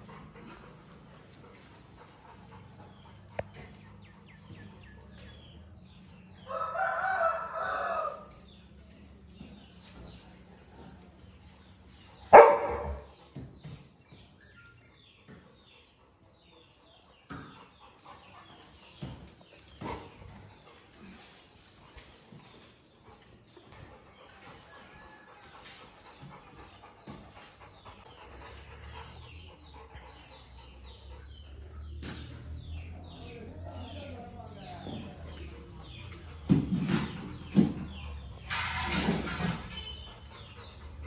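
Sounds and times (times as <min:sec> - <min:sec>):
rooster crowing: 0:06.4 - 0:08.4.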